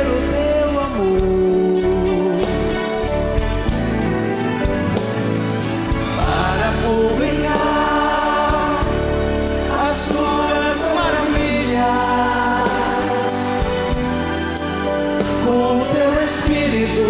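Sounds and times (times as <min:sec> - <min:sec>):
band with drums and electric guitar: 0:00.0 - 0:17.0
people singing: 0:06.0 - 0:17.0.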